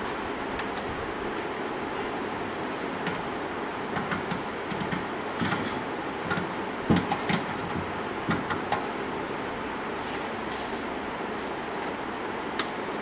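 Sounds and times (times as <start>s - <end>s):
steady background hiss: 0.0s - 13.0s
rotary switch clicking: 4.0s - 5.7s.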